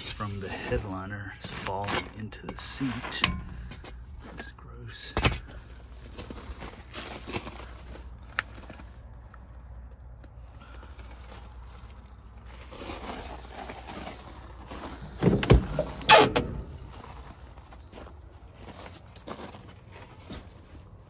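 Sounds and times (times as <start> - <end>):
rustling in car cabin: 11.0 - 21.0
dull thumps: 14.8 - 17.1.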